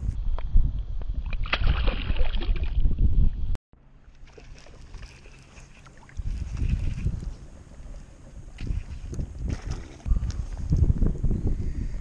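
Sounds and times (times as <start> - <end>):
wind rumbling on microphone: 0.0 - 3.6, 4.8 - 12.0
shallow water splashing: 1.3 - 2.9, 3.9 - 10.8
water lapping: 3.9 - 10.8.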